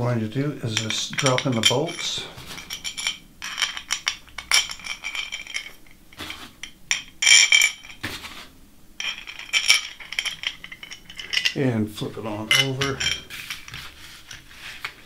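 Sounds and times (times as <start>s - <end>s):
metal bolts clinking on metal plate: 0.7s - 8.0s, 9.0s - 11.6s, 12.3s - 13.8s.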